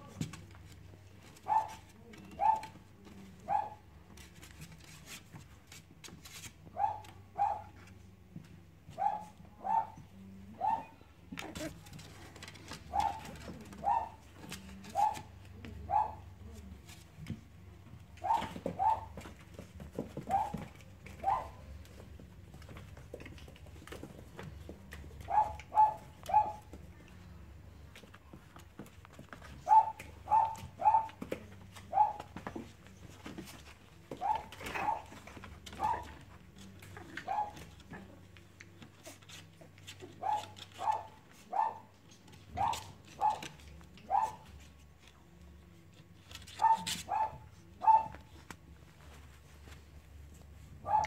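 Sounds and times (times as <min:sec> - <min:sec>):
puppies scuffling: 0:00.0 - 0:09.5, 0:11.2 - 0:51.0
puppy yapping: 0:29.6 - 0:31.2.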